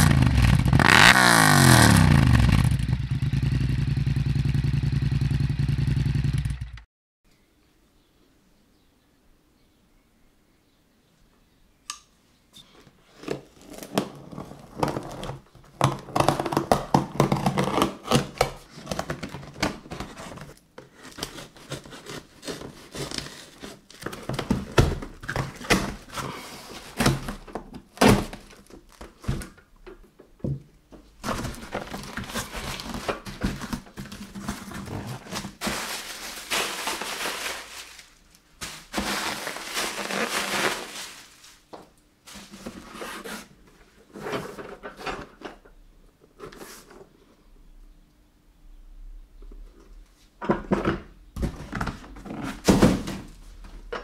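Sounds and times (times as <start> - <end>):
plastic packing crinkling: 13.2 - 29.7, 31.2 - 43.4
packing tape sliced and torn: 13.6 - 20.4, 21.0 - 29.4, 31.3 - 41.5
cardboard flaps knocked: 52.6 - 53.4.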